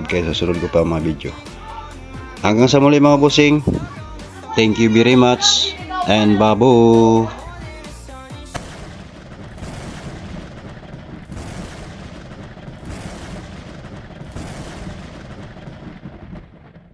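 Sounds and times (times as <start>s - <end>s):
fireworks crackling: 0.0s - 16.9s.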